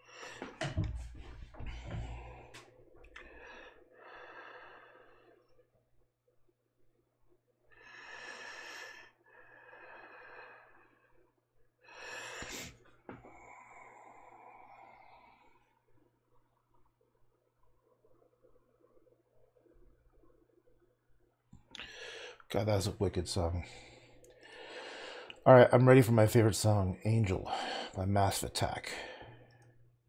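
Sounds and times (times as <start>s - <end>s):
man breathing: 0.0s - 5.5s, 7.7s - 15.6s, 21.7s - 22.5s, 23.5s - 25.4s, 27.5s - 28.0s, 28.9s - 29.7s.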